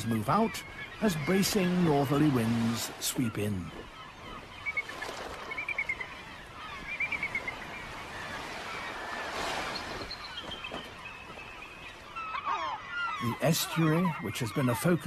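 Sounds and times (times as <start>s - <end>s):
ospreys chirping: 0.0s - 15.0s
water: 0.0s - 15.0s
wind: 0.0s - 15.0s.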